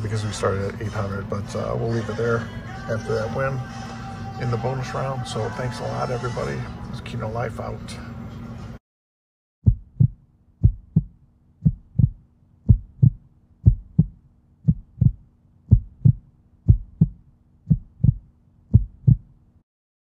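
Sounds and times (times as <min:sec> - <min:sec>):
heartbeat thumps: 0:09.6 - 0:19.4
faint steady hum: 0:09.7 - 0:19.6.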